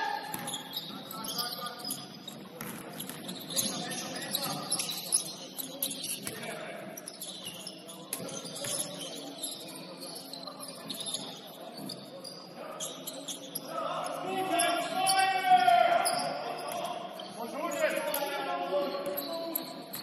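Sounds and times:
shoe squeaks and knocks: 0:00.2 - 0:13.7, 0:18.8 - 0:20.0
basketball bouncing on court: 0:00.3 - 0:00.6, 0:02.4 - 0:04.7.

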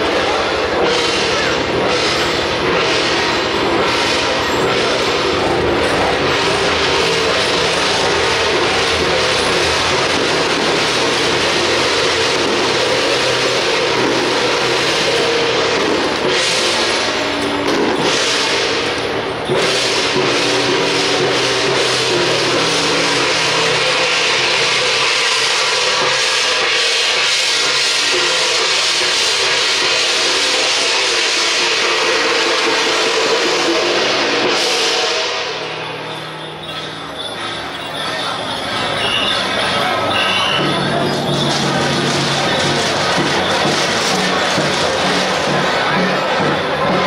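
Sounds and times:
bright cymbal crashes: 0:00.0 - 0:47.0
gongs and cymbals clashing: 0:00.0 - 0:47.0
street procession din: 0:00.0 - 0:47.0.

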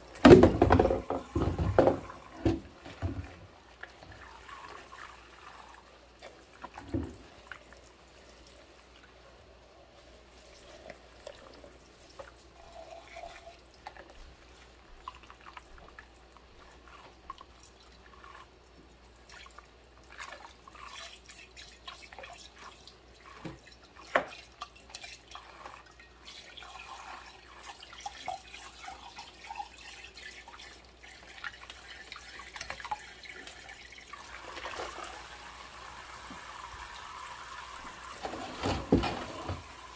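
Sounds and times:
water dripping and splashing: 0:00.0 - 0:39.9.

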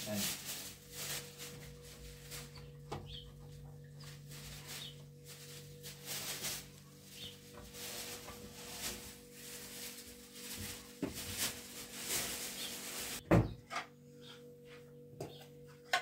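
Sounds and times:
curtain rustling: 0:00.0 - 0:02.5, 0:04.2 - 0:13.2.

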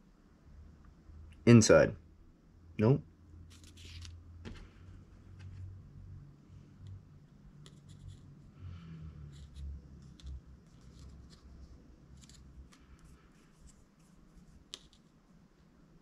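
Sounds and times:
scratchy rubbing of small parts: 0:03.5 - 0:04.2, 0:07.4 - 0:08.6, 0:09.2 - 0:15.2.

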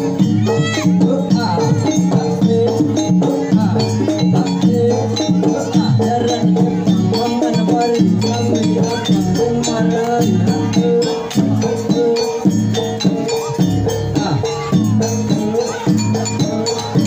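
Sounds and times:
gamelan ensemble playing: 0:00.0 - 0:17.0.

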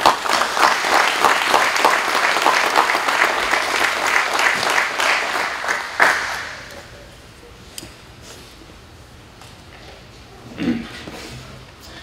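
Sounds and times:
audience applauding: 0:00.0 - 0:06.7
loud single clap: 0:00.0 - 0:06.8.

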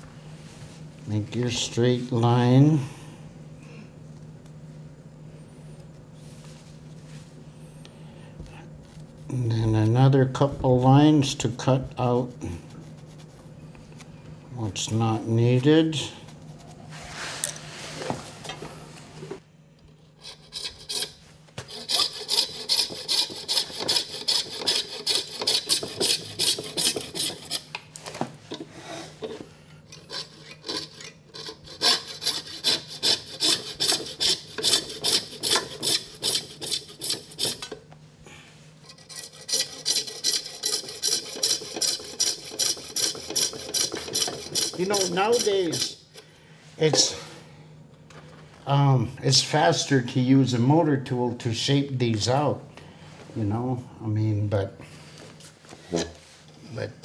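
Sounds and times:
hand saw strokes: 0:20.2 - 0:27.8, 0:30.0 - 0:37.8, 0:38.8 - 0:46.0.

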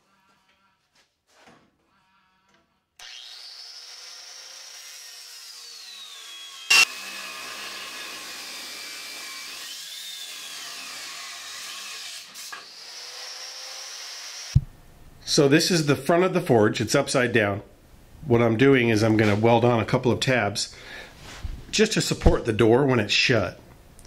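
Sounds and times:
angle grinder cutting steel: 0:03.0 - 0:14.6.

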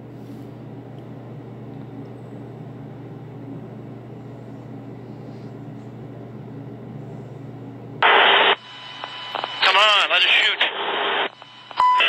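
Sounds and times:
radio static burst: 0:08.0 - 0:12.0.

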